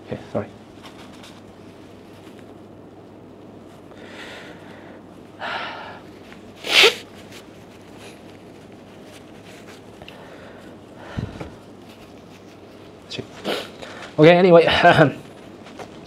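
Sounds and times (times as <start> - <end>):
man blowing nose: 6.6 - 7.1, 13.4 - 13.8.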